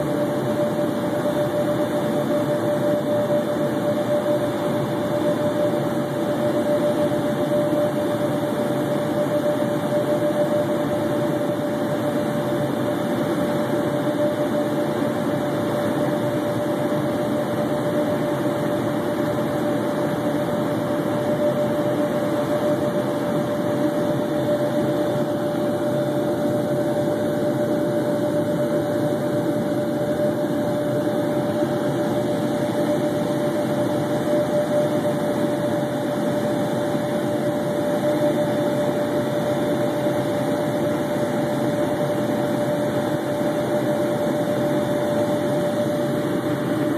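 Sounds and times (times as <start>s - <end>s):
jet cabin noise: 0.0s - 46.9s
steady engine whine: 0.0s - 46.9s.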